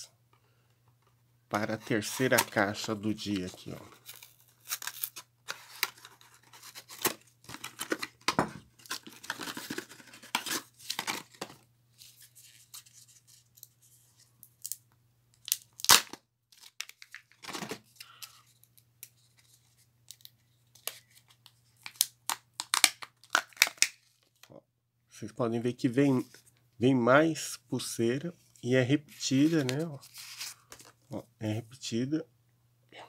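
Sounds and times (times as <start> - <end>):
foil wrapper tearing and crinkling: 4.0 - 8.0, 15.4 - 17.4, 21.8 - 24.2.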